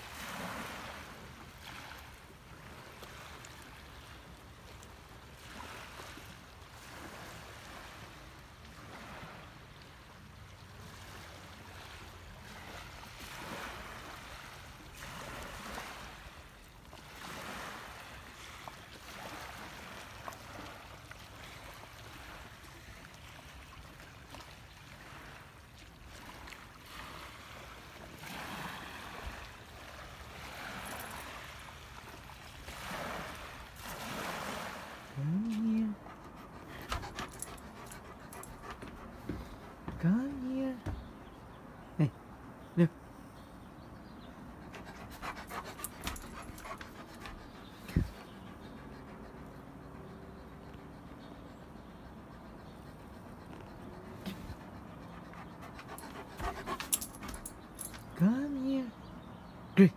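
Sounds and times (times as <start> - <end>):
small waves washing on shore: 0.0 - 38.2.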